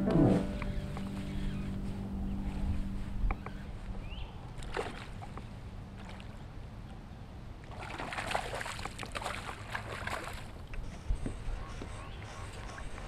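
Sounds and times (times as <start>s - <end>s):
wind rumble on microphone: 0.0s - 4.6s, 10.7s - 12.1s.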